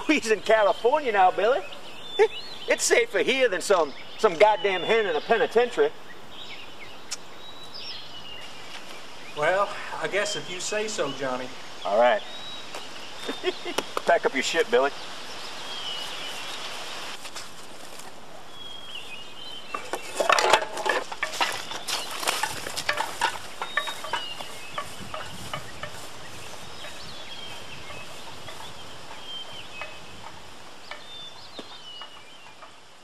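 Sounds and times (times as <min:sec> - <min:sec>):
footsteps swishing through grass: 0:14.6 - 0:19.2, 0:21.5 - 0:29.7
gear rustling and clattering: 0:19.9 - 0:24.4.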